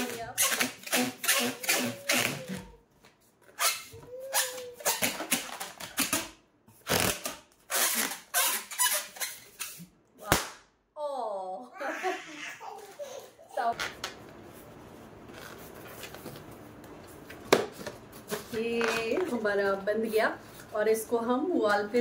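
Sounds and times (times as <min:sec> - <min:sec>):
balloon squeaking: 0:00.0 - 0:02.8, 0:03.5 - 0:09.8.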